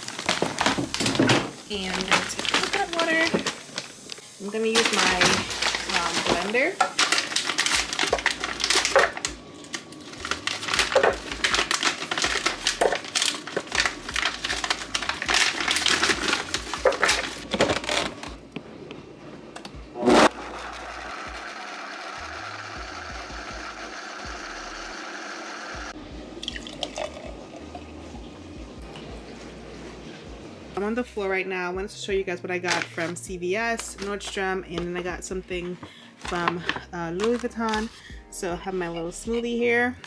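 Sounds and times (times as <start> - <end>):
frozen fruit clattering into jar: 0.0 - 3.6, 4.7 - 18.3
blender running: 20.0 - 25.9
liquid pouring: 26.3 - 30.0.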